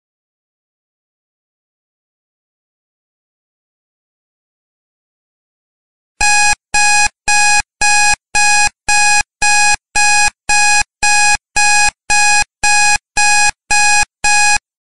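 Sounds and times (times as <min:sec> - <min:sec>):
timer alarm electronic beeps: 0:06.2 - 0:14.6.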